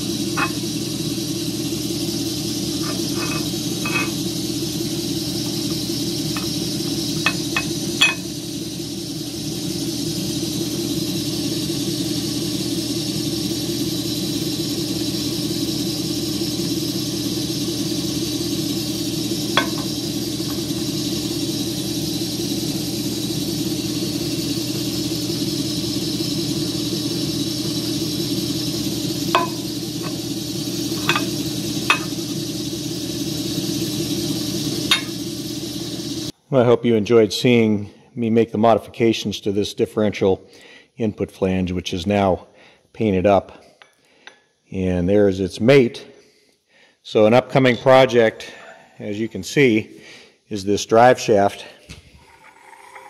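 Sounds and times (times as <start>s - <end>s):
metal parts clinking on steel table: 2.8s - 4.1s, 7.2s - 8.2s, 31.0s - 31.3s, 31.9s - 32.1s.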